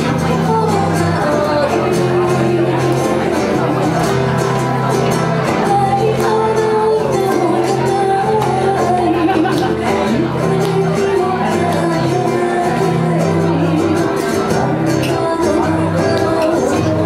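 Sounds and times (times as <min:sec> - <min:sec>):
live band music with singing: 0:00.0 - 0:17.0.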